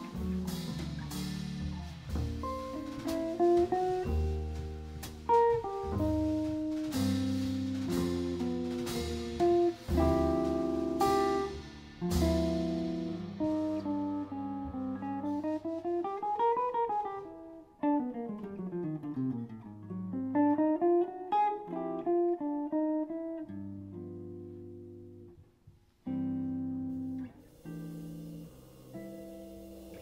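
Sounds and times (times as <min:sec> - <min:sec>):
electric jazz guitar playing: 0:00.0 - 0:30.0.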